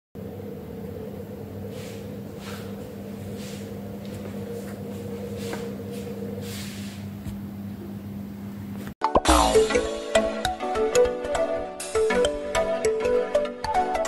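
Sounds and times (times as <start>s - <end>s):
low two-tone hum: 0.2s - 10.0s
soft brushing sounds: 1.7s - 7.4s.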